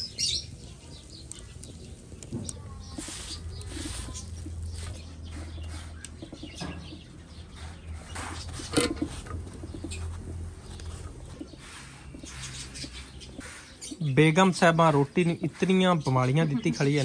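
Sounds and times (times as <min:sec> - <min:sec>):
flatbread pressed with cloth: 0:00.0 - 0:06.1
wood fire crackling: 0:00.0 - 0:16.3
birds chirping: 0:00.0 - 0:17.0.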